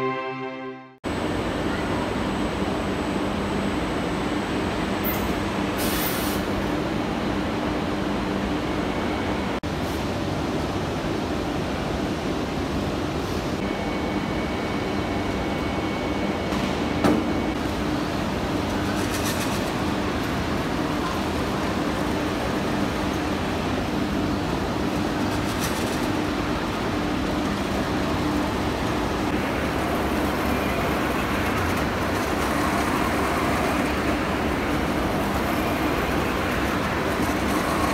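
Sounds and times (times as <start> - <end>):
packing line machinery running: 14.8 - 37.9.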